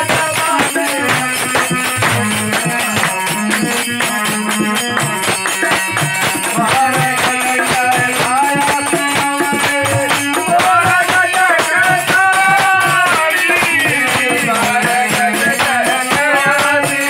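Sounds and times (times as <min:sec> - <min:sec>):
hand drum beat: 0:00.0 - 0:17.0
harmonium drone: 0:00.0 - 0:17.0
person singing: 0:06.5 - 0:17.0.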